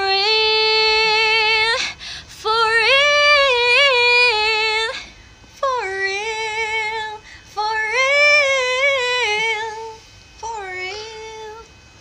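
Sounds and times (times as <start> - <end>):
singer breathing: 1.8 - 2.4, 7.2 - 7.5.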